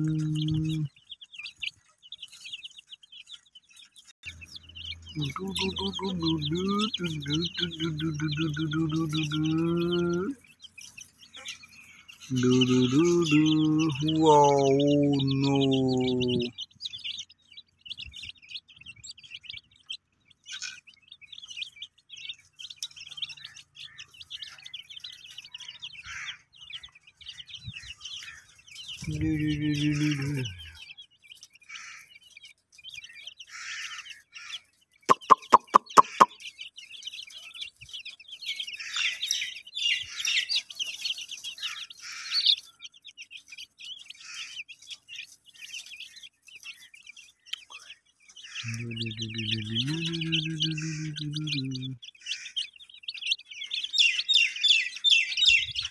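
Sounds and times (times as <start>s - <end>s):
baby chicks peeping: 0.0s - 55.9s
low drawn-out call: 48.7s - 52.0s.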